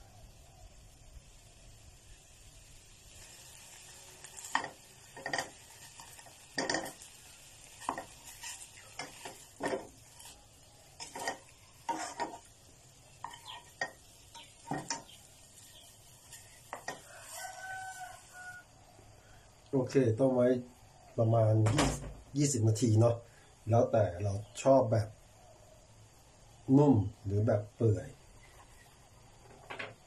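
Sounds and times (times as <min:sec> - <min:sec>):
faint sizzle: 0:00.0 - 0:30.0
spatula scraping a frying pan: 0:03.1 - 0:18.4.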